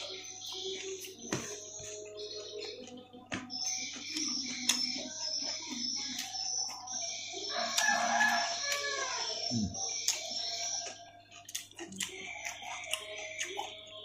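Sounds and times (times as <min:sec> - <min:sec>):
rooster crowing: 0:07.5 - 0:09.4.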